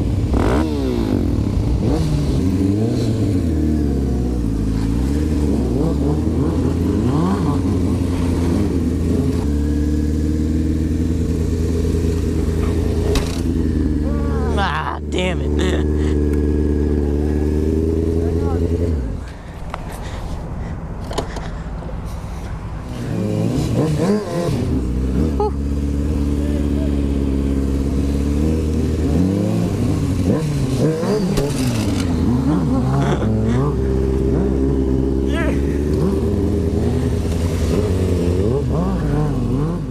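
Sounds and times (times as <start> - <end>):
motorcycle engine revving: 0.0 - 19.3, 22.8 - 39.9
clatter and scraping: 12.4 - 13.6, 30.5 - 32.4.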